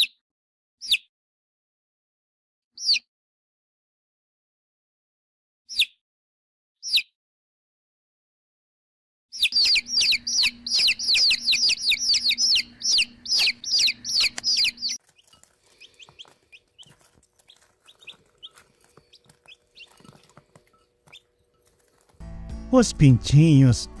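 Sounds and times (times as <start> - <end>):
baby chicks peeping: 2.8 - 3.1, 6.8 - 7.1, 9.3 - 22.2.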